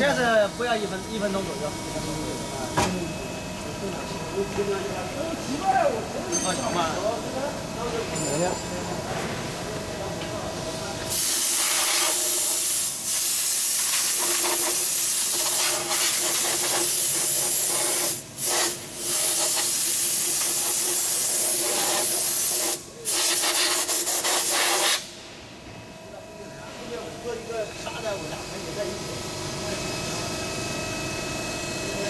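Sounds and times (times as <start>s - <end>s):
compressed air hissing: 11.1s - 25.2s.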